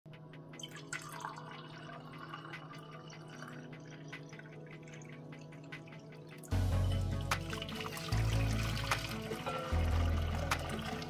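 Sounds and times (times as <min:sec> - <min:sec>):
drink pouring into a glass: 0:00.6 - 0:06.5, 0:07.2 - 0:11.0.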